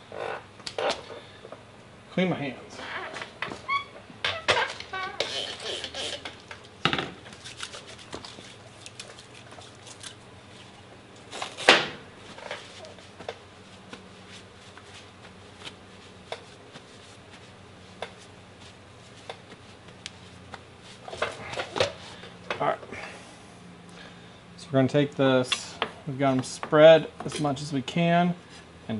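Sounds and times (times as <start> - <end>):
cloth rag rustling: 12.2 - 22.2.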